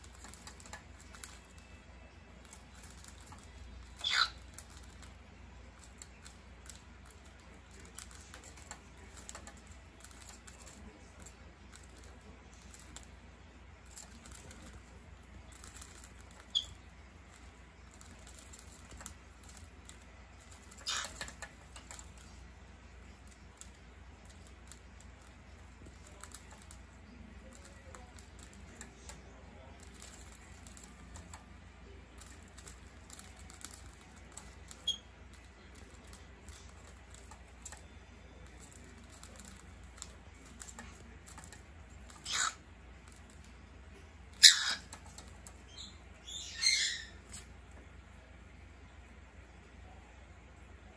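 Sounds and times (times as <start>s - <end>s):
beaks clacking: 2.3s - 13.1s, 13.8s - 31.6s, 38.5s - 43.6s, 44.2s - 47.6s.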